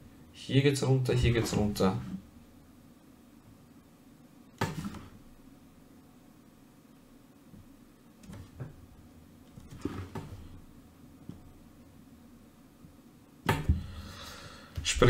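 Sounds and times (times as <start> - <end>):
soft knocks and rustles: 9.5 - 10.6.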